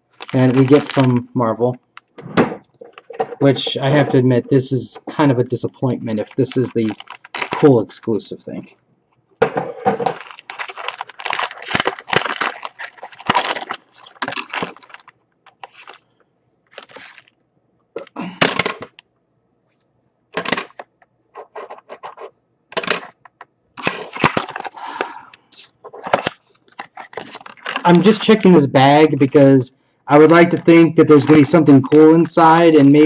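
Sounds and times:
plastic packaging crinkling: 0.0s - 4.1s, 5.5s - 8.0s, 9.8s - 17.4s, 23.8s - 29.2s, 30.4s - 33.0s.

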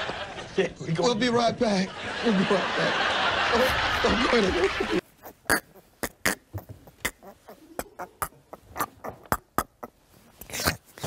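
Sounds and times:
man laughing: 2.2s - 5.0s, 7.3s - 9.2s.

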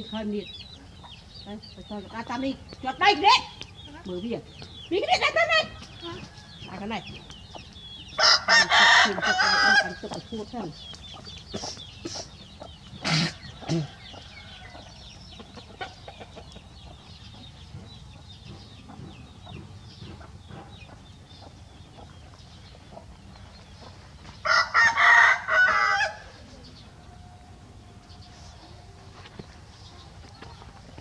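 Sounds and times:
chickens clucking: 0.0s - 31.0s
rooster crowing: 8.2s - 10.0s, 24.4s - 26.3s.

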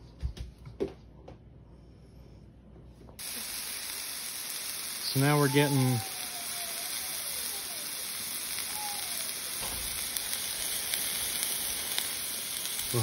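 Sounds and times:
patties sizzling on a griddle: 3.2s - 13.0s.

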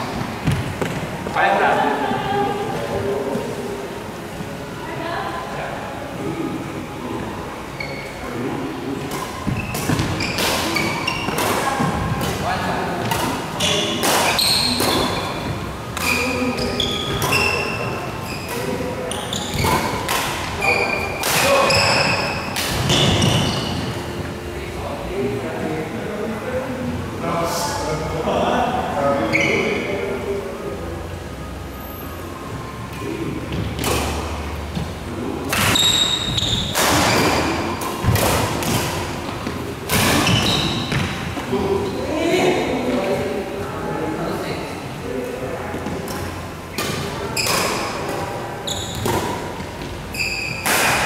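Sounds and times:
sneakers squeaking on court: 0.2s - 1.1s, 9.1s - 12.3s, 13.1s - 24.0s, 35.7s - 38.2s, 39.2s - 41.2s, 48.6s - 50.7s
racket hitting shuttlecock: 36.6s - 39.0s.

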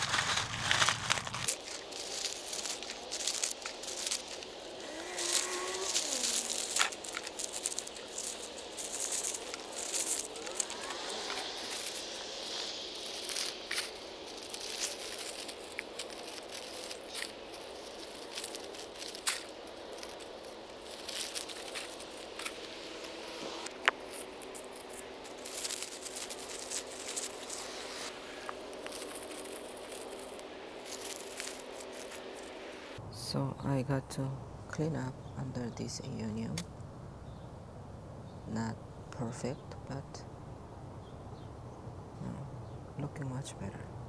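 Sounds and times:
leaves dropped into a box: 0.0s - 32.6s
dry leaves crackling: 0.0s - 33.0s.

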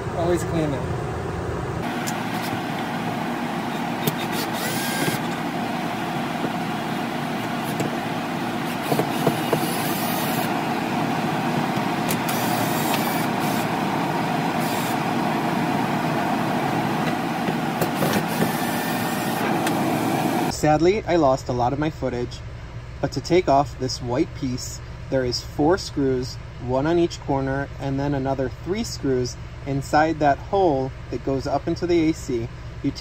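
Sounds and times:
air conditioner humming: 0.0s - 33.0s
cordless drill running: 1.9s - 10.6s, 12.0s - 13.7s, 14.5s - 15.1s, 17.5s - 20.5s.

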